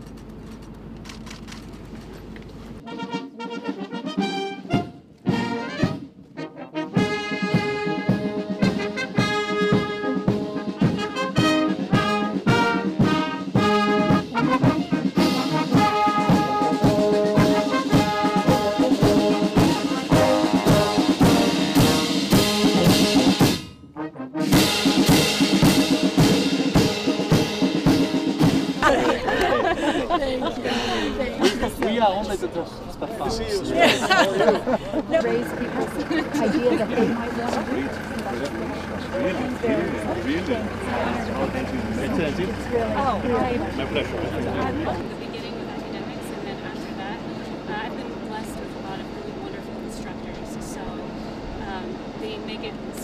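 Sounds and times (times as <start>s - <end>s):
brass band playing a march: 2.8s - 30.0s, 34.1s - 45.6s
bass drum beat: 7.0s - 23.7s, 24.5s - 29.3s.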